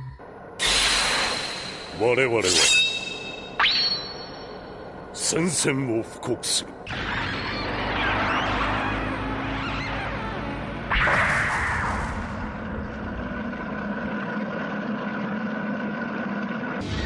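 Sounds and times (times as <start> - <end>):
spaceship low drone: 6.7 - 17.0.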